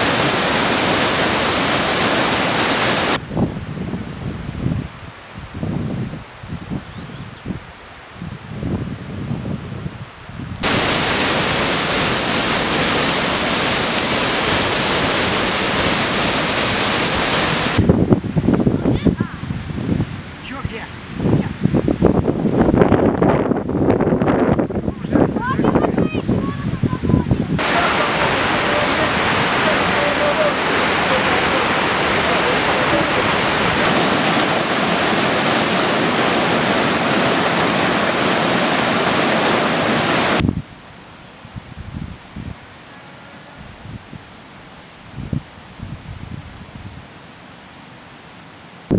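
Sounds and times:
waterfall rushing: 0.0s - 3.2s, 10.6s - 21.7s, 24.8s - 40.4s
gusty low sounds: 8.6s - 39.1s.

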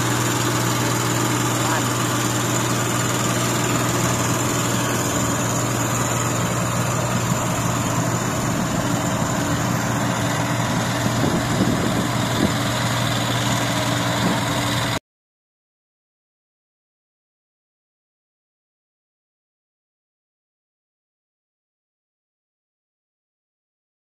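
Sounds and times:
combine harvester diesel engine: 0.0s - 15.0s.

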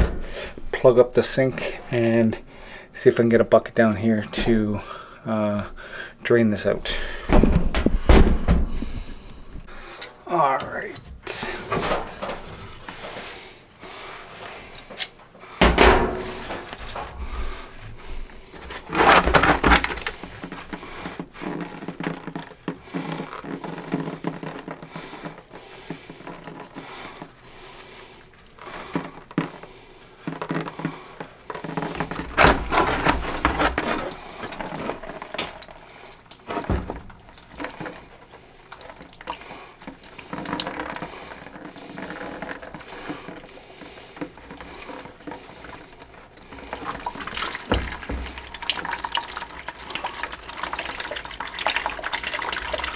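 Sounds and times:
water splashing into a bucket: 30.3s - 52.9s.

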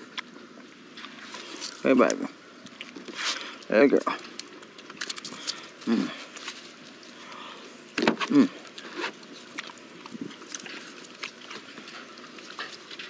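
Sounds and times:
rustling on dry leaves: 0.8s - 13.0s
short vocal sound: 5.8s - 6.3s.

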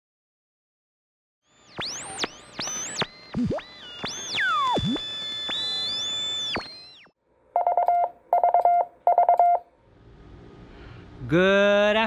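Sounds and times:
gliding synthesizer tones: 1.5s - 7.1s
rapid electronic beeping: 1.5s - 9.6s.

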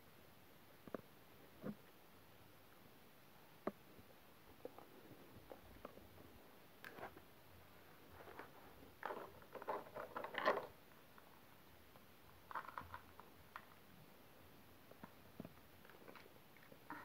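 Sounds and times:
plastic toys clicking and rattling: 8.2s - 10.8s, 12.5s - 13.8s.

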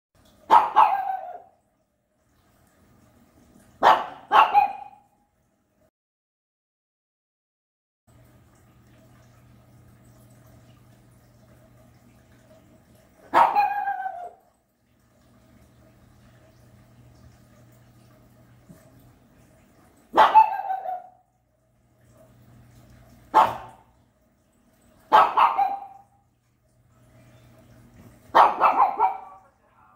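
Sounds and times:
dog barking angrily: 0.5s - 1.5s, 3.8s - 5.0s, 13.3s - 14.4s, 20.1s - 21.2s, 23.3s - 23.8s, 25.1s - 26.0s, 28.3s - 29.4s
dog yelping: 0.5s - 1.6s, 3.8s - 5.0s, 13.3s - 14.4s, 20.2s - 21.2s, 25.1s - 26.0s, 28.4s - 29.4s.

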